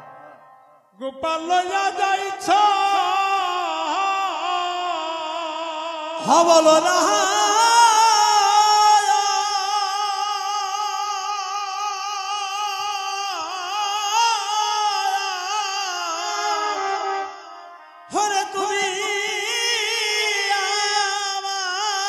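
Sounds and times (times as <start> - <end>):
harmonium: 0.0 - 5.2, 6.4 - 22.0
man singing a long high note: 1.0 - 22.0.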